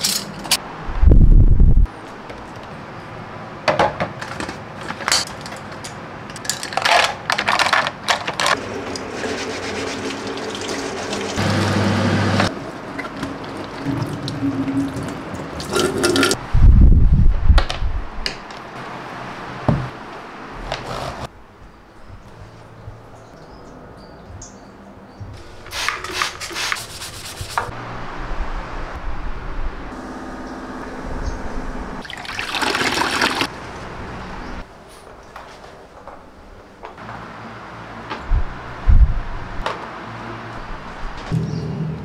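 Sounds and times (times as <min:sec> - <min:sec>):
small objects clicking and clattering: 0:05.1 - 0:08.6
tap water running into sink: 0:32.0 - 0:33.5
loud low thumps: 0:38.3 - 0:39.6.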